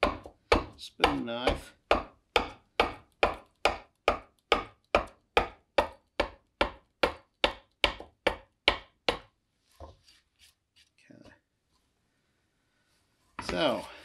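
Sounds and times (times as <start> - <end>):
adze chopping wood: 0.0 - 9.3.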